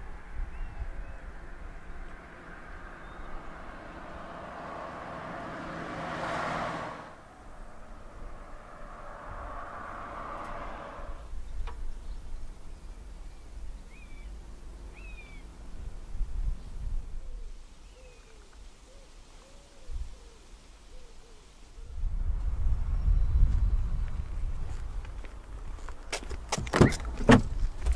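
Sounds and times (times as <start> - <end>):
car engine hum: 0.0 - 16.6
vehicle passing: 1.3 - 11.4
bird chirps: 2.9 - 3.4, 11.4 - 15.5.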